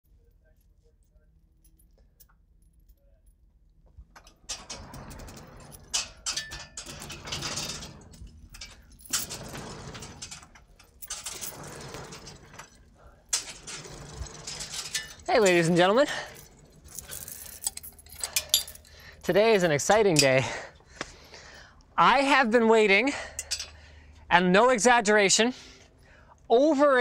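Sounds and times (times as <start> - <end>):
door hand chain rattling: 4.1 - 20.7.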